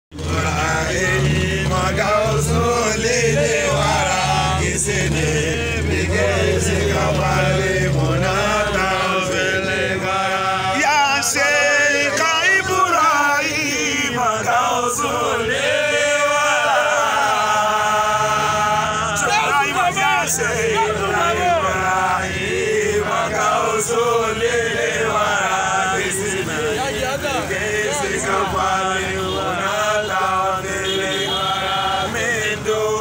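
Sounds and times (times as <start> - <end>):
men chanting together: 0.2 - 33.0.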